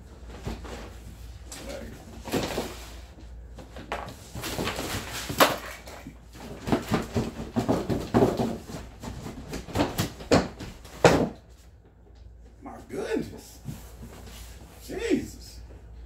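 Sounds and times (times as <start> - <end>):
cardboard scraping and rustling: 3.8 - 5.6.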